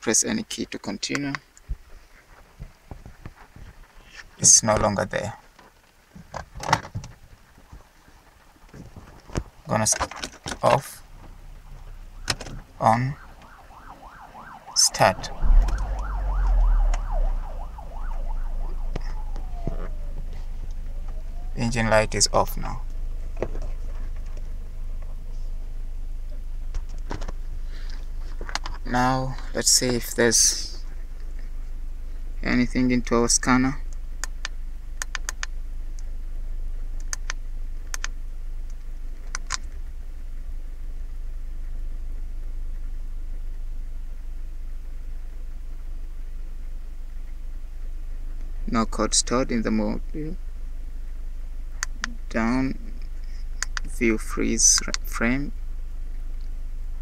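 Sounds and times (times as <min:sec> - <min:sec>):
car engine starting and idling: 0:10.2 - 0:30.4
emergency siren wailing: 0:12.0 - 0:22.3.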